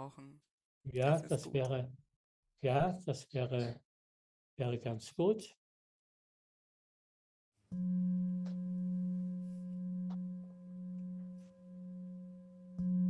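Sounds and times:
singing bowl ringing: 7.7s - 13.0s.

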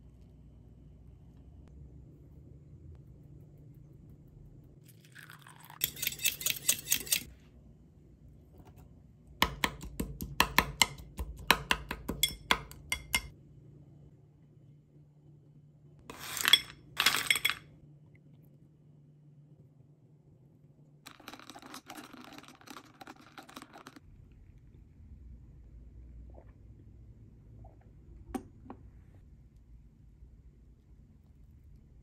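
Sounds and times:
metal whisk clinking against glass: 5.4s - 7.3s, 12.1s - 13.3s.

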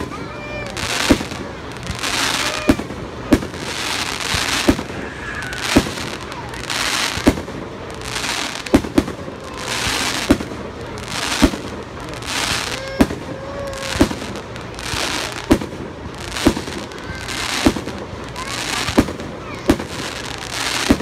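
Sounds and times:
firework hiss: 0.0s - 21.0s
firework shells bursting: 0.8s - 13.3s.

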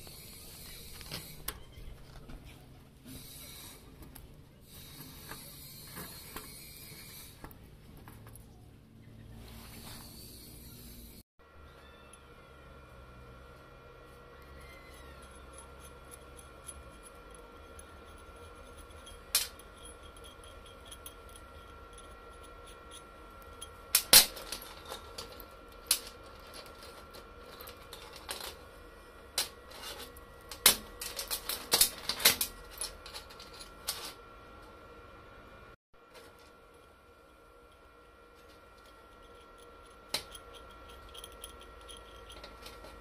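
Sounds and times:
roller chain clinking: 14.9s - 28.6s, 38.4s - 43.0s
steel parts clinking on workbench: 15.1s - 28.6s, 29.4s - 34.2s, 38.4s - 43.0s.

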